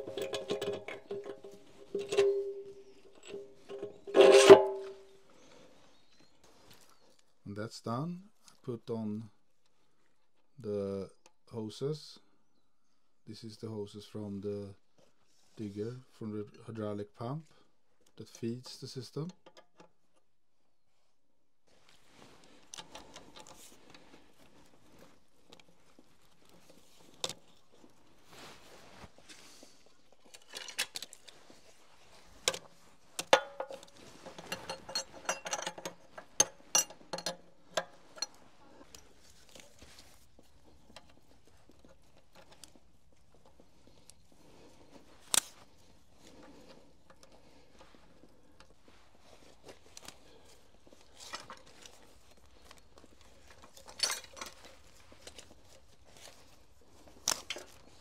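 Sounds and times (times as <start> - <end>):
metal tools clinking and knocking: 0.0 - 5.1, 33.2 - 39.7, 53.5 - 55.4.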